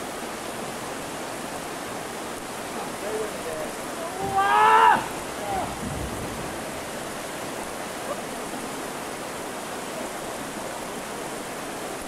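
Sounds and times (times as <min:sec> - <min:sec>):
river rapid rushing over rocks: 0:00.0 - 0:12.0.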